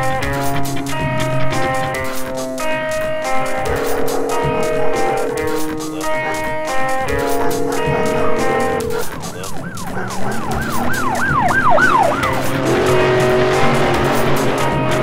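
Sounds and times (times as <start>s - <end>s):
rushing whoosh: 2.4s - 10.6s
siren wailing: 2.6s - 15.0s
steady low tone: 3.4s - 10.4s.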